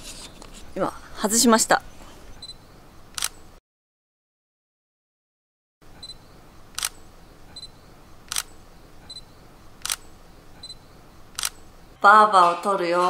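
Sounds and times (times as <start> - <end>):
camera shutter clicking: 3.1 - 3.4, 6.7 - 7.1, 8.3 - 8.6, 9.8 - 10.1, 11.3 - 11.7.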